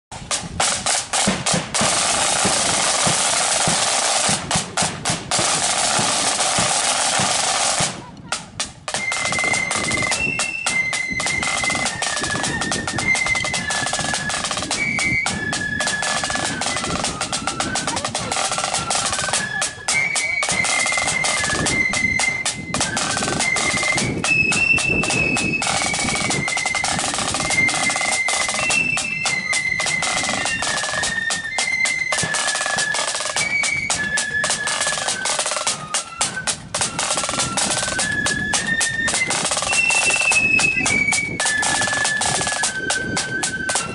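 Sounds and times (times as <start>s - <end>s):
snare drums rattling: 0.1s - 43.9s
flute melody: 0.2s - 43.9s.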